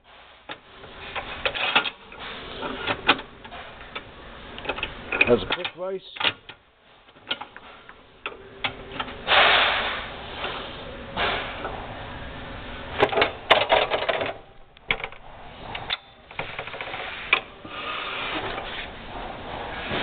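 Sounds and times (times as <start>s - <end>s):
metal clicks and rattles: 1.2s - 9.2s, 13.0s - 17.5s.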